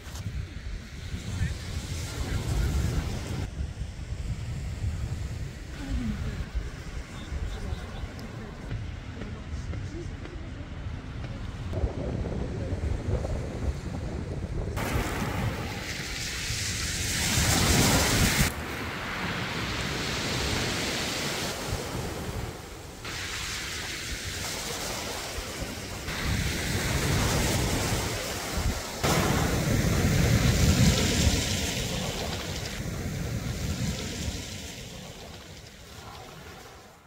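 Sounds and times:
wind buffeting microphone: 0.0s - 36.8s
waves breaking on pebble beach: 14.8s - 37.0s.

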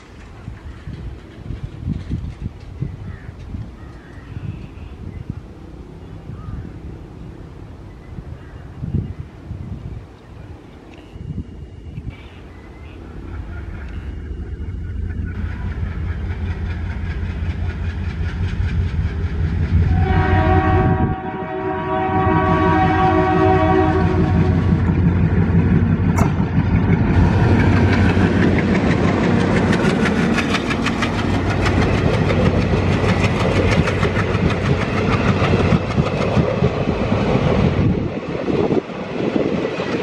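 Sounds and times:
train wheels clickety-clack: 0.0s - 4.2s, 13.3s - 20.8s, 24.0s - 40.0s
locomotive engine rumble: 0.0s - 40.0s
train horn blast: 19.8s - 24.8s.

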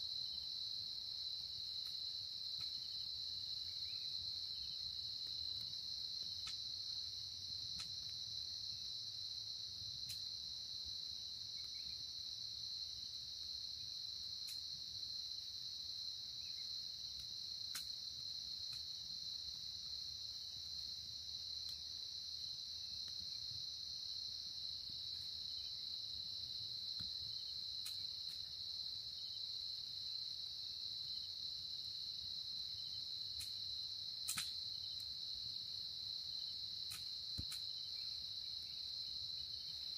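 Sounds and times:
crickets chirring: 0.0s - 39.9s
faint ticks and clicks: 1.8s - 2.9s, 5.2s - 6.7s, 7.4s - 8.2s, 10.0s - 10.4s, 14.4s - 14.7s, 17.1s - 18.0s, 26.9s - 28.6s, 33.3s - 33.6s, 34.2s - 35.2s, 36.8s - 37.8s.

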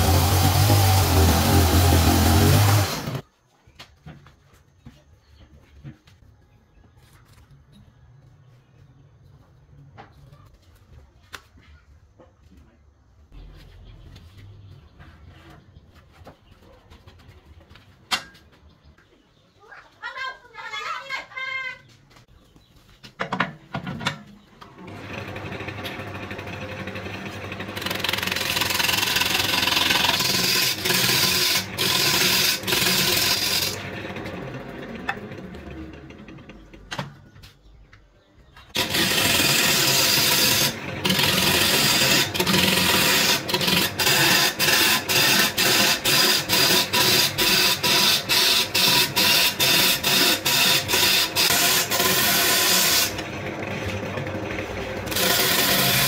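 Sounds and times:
lathe motor hum: 0.0s - 3.2s, 24.8s - 36.7s, 38.8s - 56.0s
gouge scraping wood: 27.8s - 33.8s, 38.8s - 53.2s, 55.1s - 56.0s.

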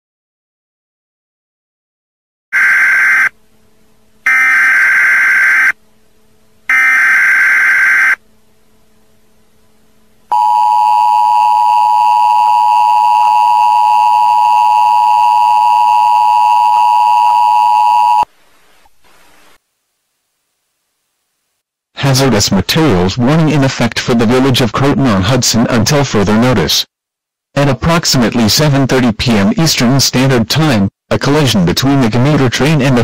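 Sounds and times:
data burst tones: 2.6s - 3.3s, 4.3s - 5.8s, 6.7s - 8.2s.

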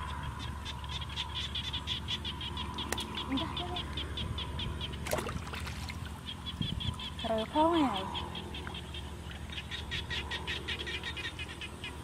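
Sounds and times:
frog chirping rapidly: 0.6s - 5.5s, 6.1s - 12.0s
water splashing: 5.0s - 6.3s.

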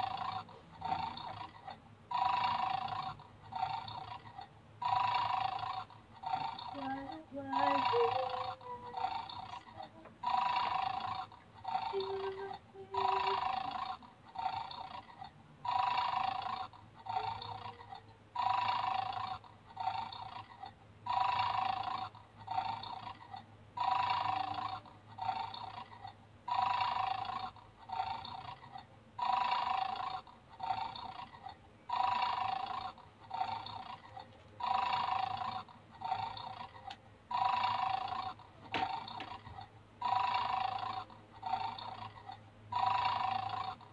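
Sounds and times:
toy dog recorded snoring: 0.0s - 43.9s.

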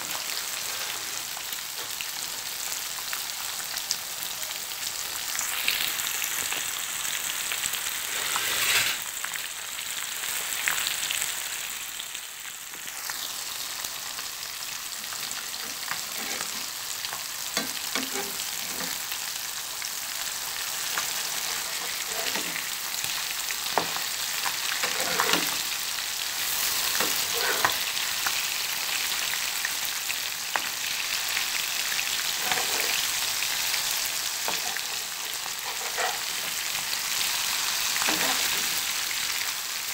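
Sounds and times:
fish sizzling in oil: 0.0s - 39.9s
spatula scraping and tapping pan: 15.6s - 16.7s, 17.6s - 19.0s, 21.0s - 22.6s, 23.7s - 25.6s, 26.9s - 27.8s, 32.4s - 33.0s, 34.5s - 36.6s.

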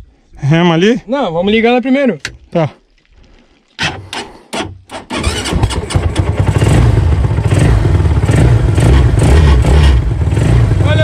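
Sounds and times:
motorcycle engine running: 5.2s - 11.0s.

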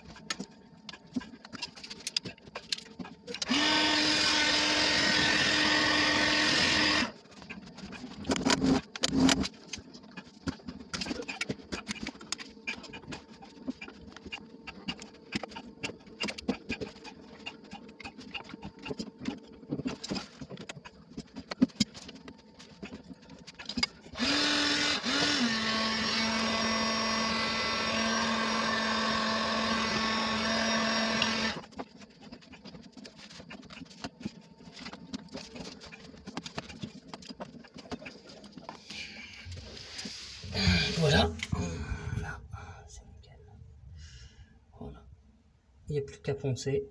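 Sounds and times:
hand tools clicking and scraping: 0.0s - 41.5s
heat gun fan hum: 3.3s - 7.2s, 24.0s - 31.6s.

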